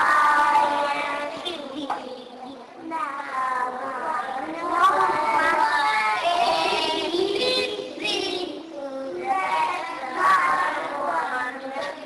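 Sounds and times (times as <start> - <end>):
young children singing: 0.0 - 12.0.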